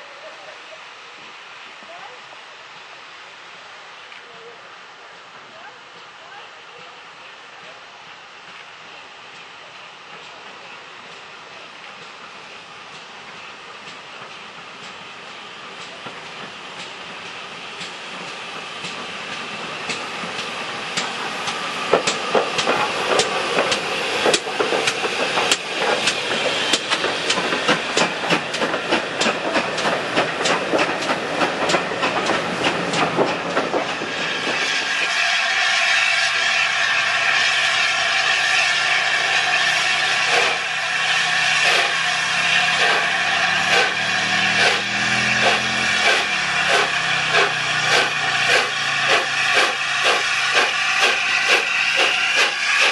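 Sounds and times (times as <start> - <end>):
steam locomotive hissing: 0.0 - 52.9
steam locomotive exhaust beats: 5.2 - 52.9
train wheel clatter: 9.3 - 52.9.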